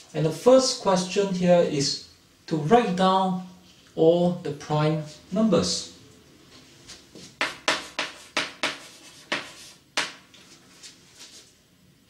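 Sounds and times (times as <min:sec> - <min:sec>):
chalk writing on blackboard: 0:07.2 - 0:10.2.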